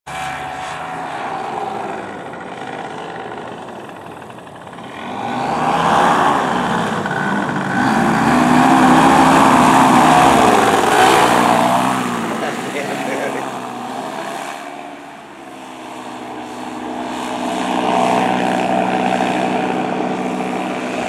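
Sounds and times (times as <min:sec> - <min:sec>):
paramotor engine flying past: 0:00.1 - 0:21.0.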